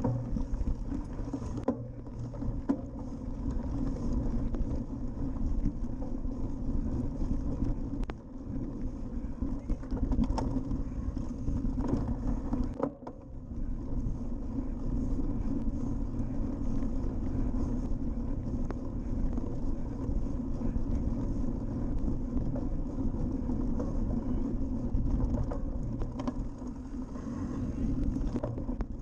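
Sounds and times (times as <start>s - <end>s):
bike rattles and knocks: 0.0s - 29.0s
wind buffeting microphone: 0.0s - 29.0s.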